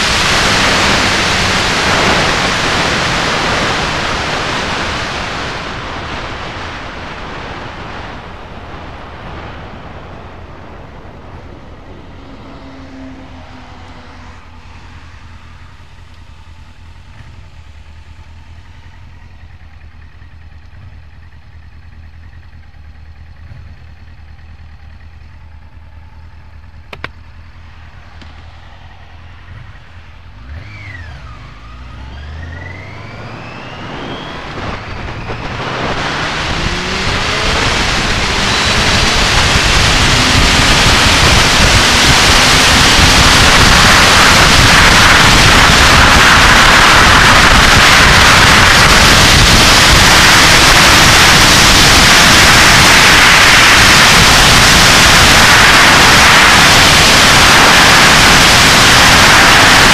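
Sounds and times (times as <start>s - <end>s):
wind noise on microphone: 0.0s - 11.9s, 33.1s - 59.9s
motorcycle engine accelerating: 0.0s - 59.9s.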